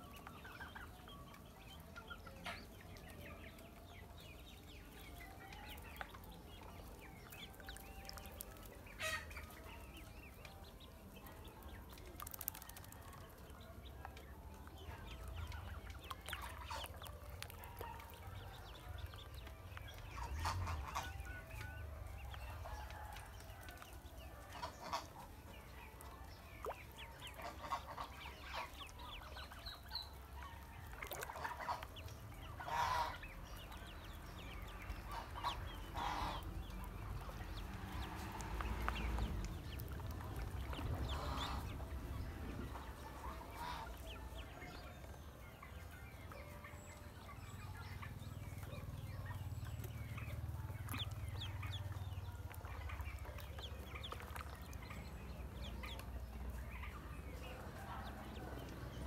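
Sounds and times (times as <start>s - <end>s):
fowl honking and clucking: 8.4s - 9.8s, 19.8s - 23.7s, 24.3s - 26.1s, 27.0s - 33.9s, 34.8s - 37.4s, 40.9s - 41.9s, 42.6s - 58.6s.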